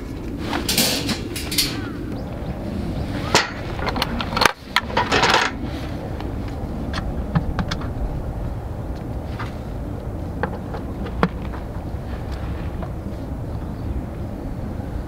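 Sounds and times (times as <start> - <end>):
scraping rustle: 0.0 - 6.6
metal handles clinking: 0.5 - 2.1, 3.2 - 5.6.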